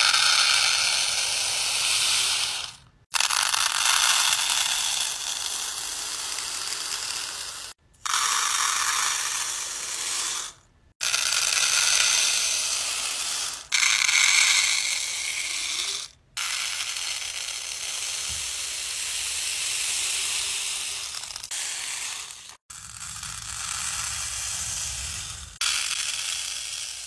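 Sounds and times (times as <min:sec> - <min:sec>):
beads pouring into plastic: 0:15.3 - 0:27.0.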